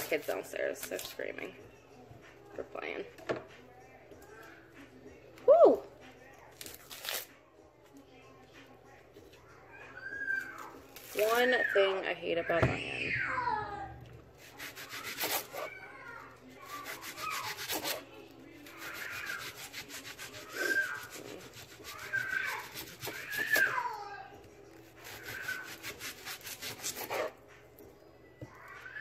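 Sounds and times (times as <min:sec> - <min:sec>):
faint high-pitched cries: 0:04.1 - 0:05.9, 0:09.4 - 0:27.1, 0:28.4 - 0:29.0
onion skin crackling: 0:06.5 - 0:07.4, 0:10.2 - 0:11.9, 0:14.4 - 0:23.9, 0:24.8 - 0:27.4.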